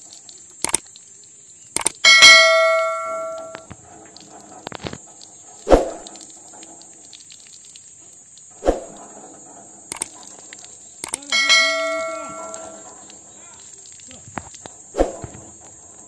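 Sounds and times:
sharp clicks: 0.0s - 5.0s, 9.9s - 15.4s
bell-like chime: 2.1s - 3.6s, 11.3s - 12.8s.

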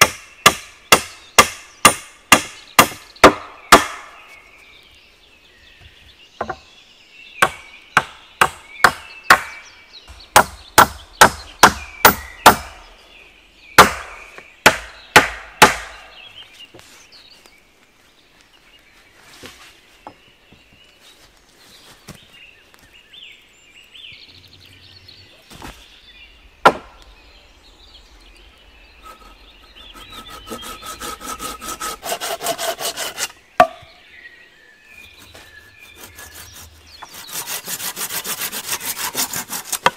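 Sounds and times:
hatchet chopping wood: 0.0s - 4.2s, 7.4s - 12.9s, 13.8s - 16.2s, 26.6s - 27.0s, 30.5s - 33.9s, 37.0s - 39.9s
hand saw rasping through wood: 29.0s - 33.3s, 35.2s - 39.9s.

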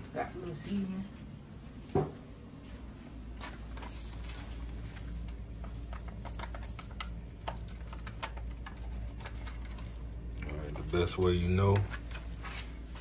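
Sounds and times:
steady low hum: 0.0s - 13.0s
light clicks and taps of food handling: 3.4s - 11.0s.

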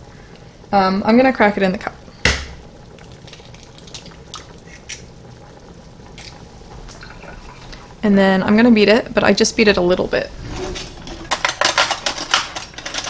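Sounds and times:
egg shell cracking knock: 2.2s - 2.6s.

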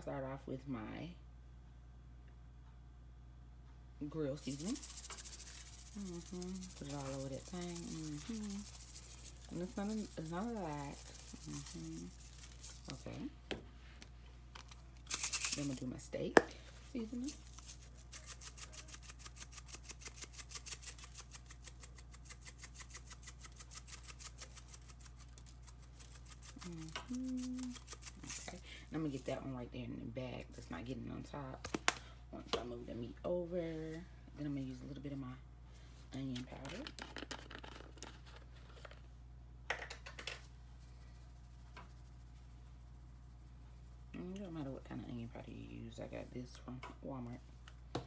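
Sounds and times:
low steady hum: 0.0s - 48.0s
granules rattling in shaker: 4.1s - 13.4s, 14.6s - 29.6s, 36.2s - 39.1s, 39.7s - 46.3s.

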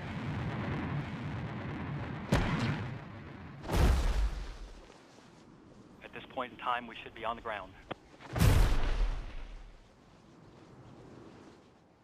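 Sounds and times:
heavy boom: 8.3s - 9.8s.

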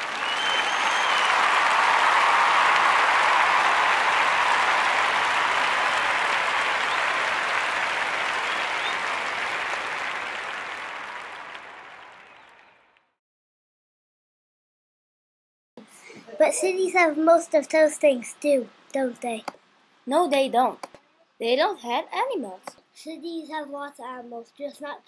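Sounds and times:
crowd applause and cheering: 0.0s - 13.0s.

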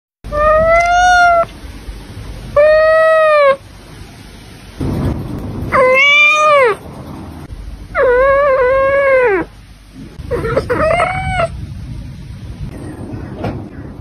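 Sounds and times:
cat meowing: 0.3s - 1.5s, 2.5s - 3.6s, 5.7s - 6.8s, 8.0s - 9.5s, 10.2s - 11.6s.

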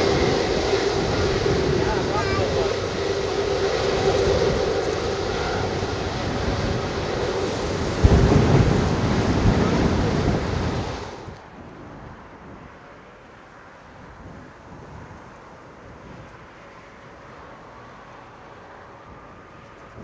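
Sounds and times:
low rumble: 0.0s - 11.6s
distant engine hum: 0.0s - 20.0s
jet engine whine: 0.0s - 20.0s.

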